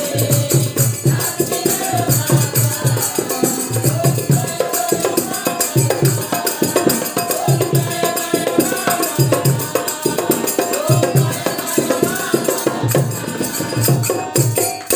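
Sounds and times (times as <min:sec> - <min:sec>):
women singing a devotional chant: 0:00.0 - 0:14.9.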